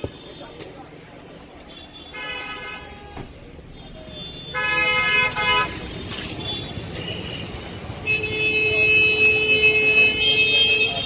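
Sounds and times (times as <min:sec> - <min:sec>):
vehicle horns honking: 0:01.7 - 0:03.2, 0:04.0 - 0:11.0.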